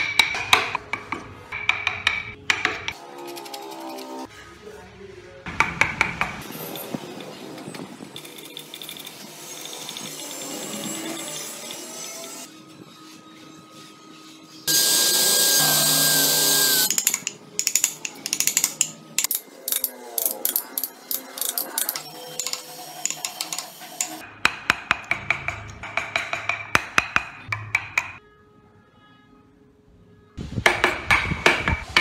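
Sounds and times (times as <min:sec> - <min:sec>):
power tool running: 0:14.7 - 0:16.9.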